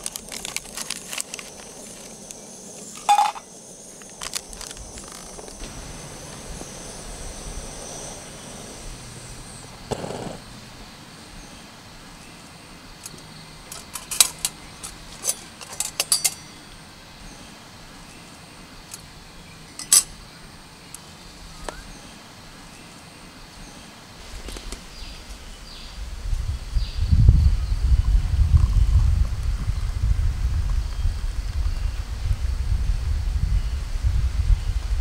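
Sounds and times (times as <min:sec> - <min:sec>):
quiet outdoor ambience: 0:00.0 - 0:35.0
metal pot and lid clinking: 0:03.0 - 0:03.4, 0:15.2 - 0:16.5, 0:19.8 - 0:20.1.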